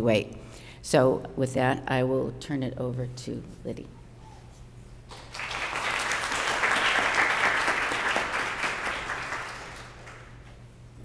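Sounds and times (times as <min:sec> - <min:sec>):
audience applauding: 0:05.1 - 0:10.5.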